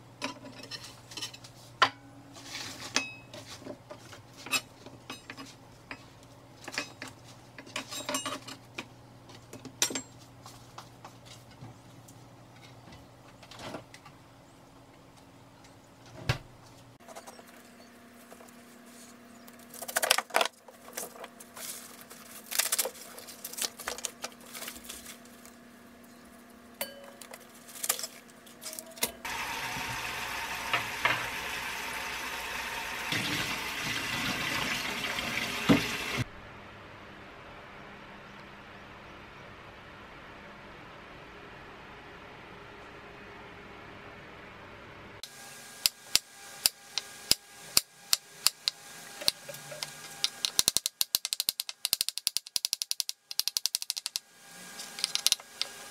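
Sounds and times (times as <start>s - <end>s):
handling of onion stalks: 17.5s - 25.6s, 27.2s - 29.0s
tap running into a metal bowl: 33.1s - 36.2s.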